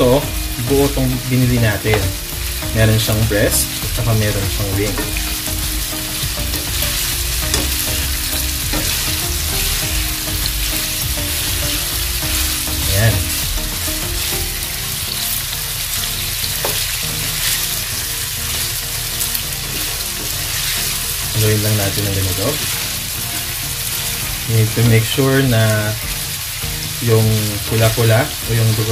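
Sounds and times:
chicken sizzling in hot oil: 0.0 - 28.9.

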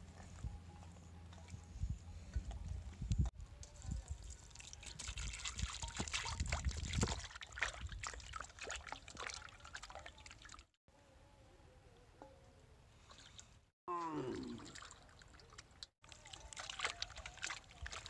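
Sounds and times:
water splashing into steel bowl: 3.7 - 10.7, 14.4 - 18.0
hands sloshing chicken in water: 4.6 - 10.6, 14.4 - 18.0.

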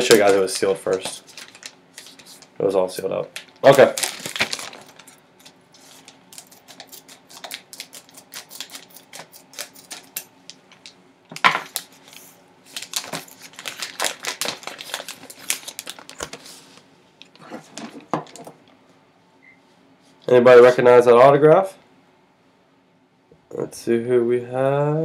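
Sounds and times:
packaging rustling: 0.0 - 2.5, 3.4 - 18.6.

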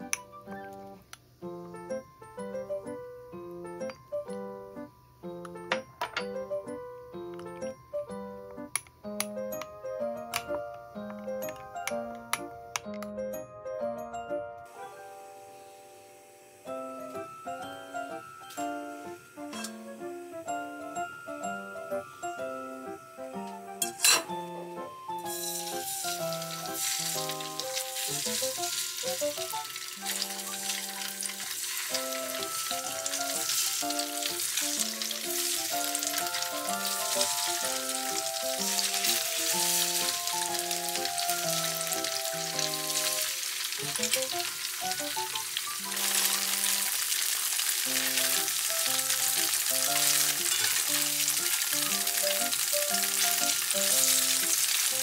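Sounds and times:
tofu sizzling in hot oil: 25.2 - 55.0.

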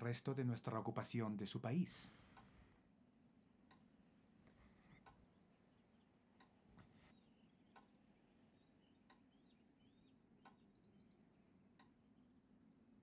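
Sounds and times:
faint slow ticking: 1.9 - 12.2
faint bird chirps: 4.6 - 13.0.

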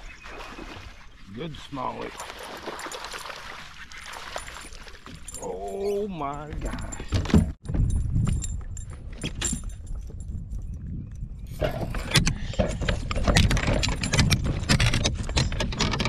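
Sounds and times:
rattling and knocking in kayak: 11.6 - 16.0.

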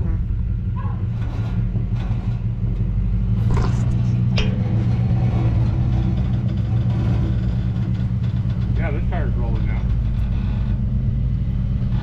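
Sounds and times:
motor droning: 3.2 - 12.0.

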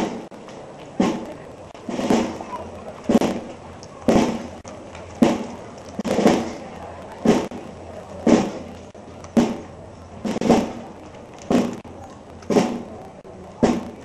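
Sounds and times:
bass drum and cymbals march: 0.0 - 0.4, 1.0 - 4.6, 5.2 - 6.6, 7.2 - 10.9, 11.5 - 11.8, 12.5 - 13.0, 13.6 - 14.0.

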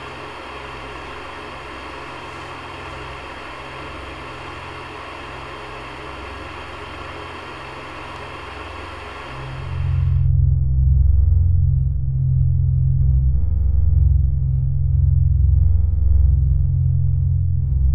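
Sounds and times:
steady hiss: 0.0 - 10.3
low hum: 0.0 - 17.9.

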